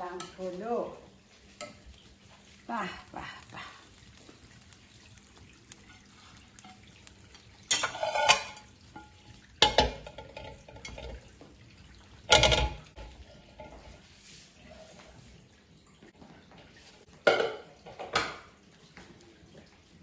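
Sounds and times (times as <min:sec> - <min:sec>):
cookware clanking: 0:05.8 - 0:11.3, 0:12.3 - 0:14.0, 0:17.2 - 0:18.5.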